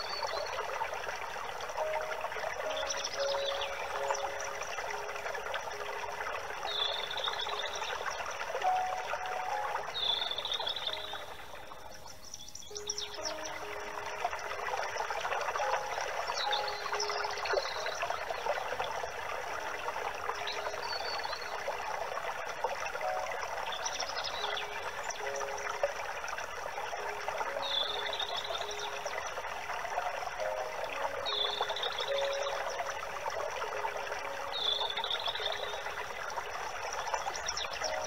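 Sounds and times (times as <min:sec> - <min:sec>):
water trickling: 0:00.0 - 0:38.0
bird chirping: 0:01.8 - 0:05.0, 0:06.6 - 0:14.1, 0:15.6 - 0:18.4, 0:23.0 - 0:25.7, 0:27.6 - 0:29.0, 0:30.4 - 0:32.8.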